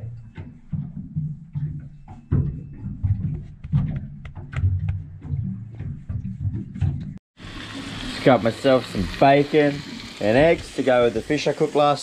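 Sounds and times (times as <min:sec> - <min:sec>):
wood-block-like hits: 0:00.0 - 0:07.2.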